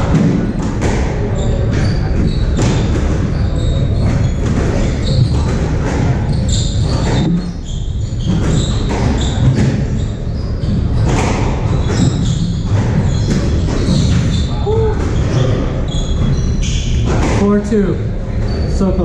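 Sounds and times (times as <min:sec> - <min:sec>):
shoe squeaks: 0:01.3 - 0:17.5, 0:18.3 - 0:19.0
squash ball cracking off walls: 0:10.8 - 0:15.2.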